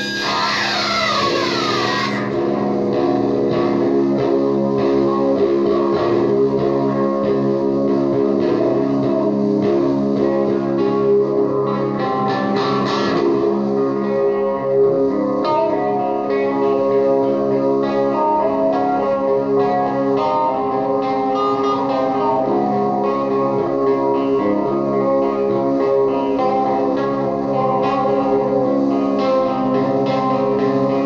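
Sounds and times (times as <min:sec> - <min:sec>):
droning held tones: 0:00.0 - 0:02.5
electric guitar picked and strummed: 0:00.0 - 0:31.0.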